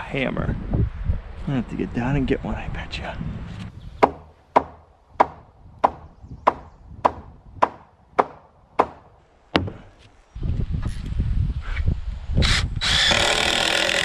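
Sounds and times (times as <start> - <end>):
hammer striking timber: 4.0 - 9.8.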